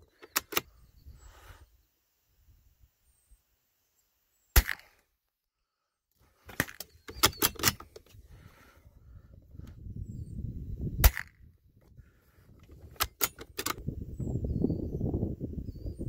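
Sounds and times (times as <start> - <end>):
rifle handling clicks: 0.1 - 0.7, 6.5 - 8.2, 12.8 - 13.8
rifle shot: 4.6 - 5.0, 11.0 - 11.4.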